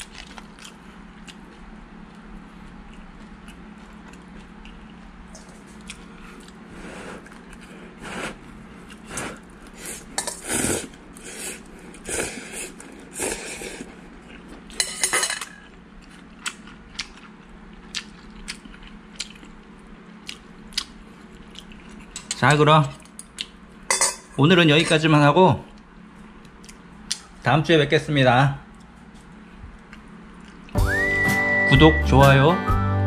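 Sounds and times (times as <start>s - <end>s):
noodles slurping: 5.9s - 14.5s.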